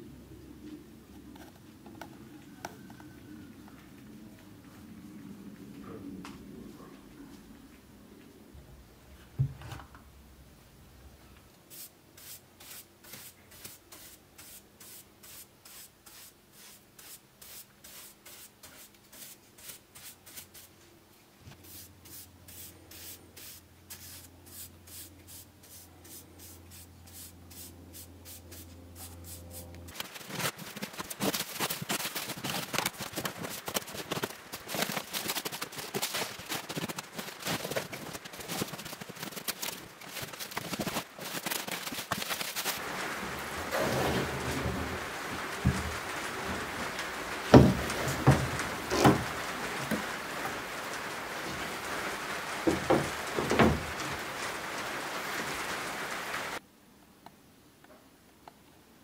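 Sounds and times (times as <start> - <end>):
brush sweeping sawdust on wood: 11.7 - 20.8, 21.5 - 33.9
bubble wrap crinkling: 29.9 - 43.6.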